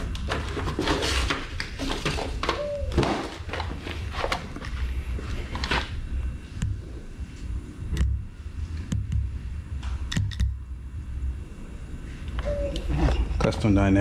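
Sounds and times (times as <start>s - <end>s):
cardboard rustling and scraping: 0.0s - 6.0s.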